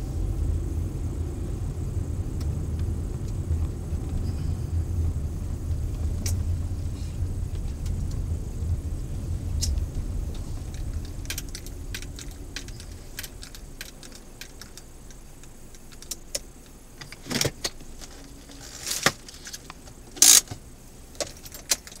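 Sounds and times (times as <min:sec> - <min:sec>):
car rumbling slowly: 0:00.0 - 0:22.0
clicks inside car cabin: 0:09.6 - 0:22.0.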